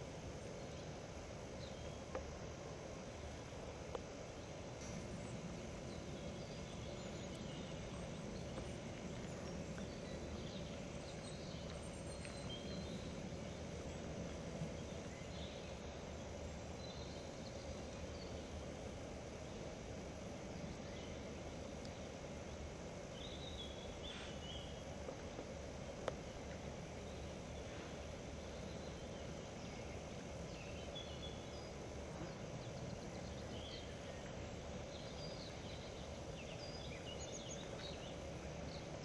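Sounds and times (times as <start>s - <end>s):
steady low hiss: 0.0s - 39.0s.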